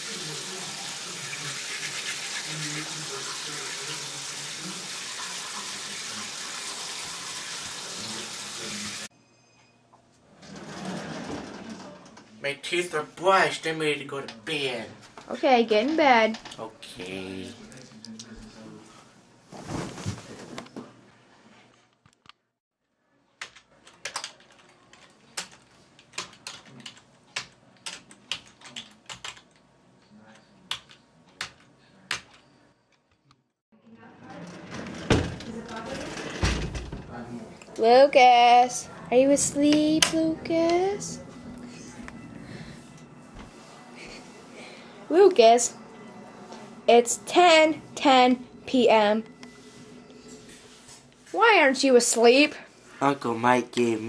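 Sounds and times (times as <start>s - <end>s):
tap water running into sink: 0.0s - 9.1s.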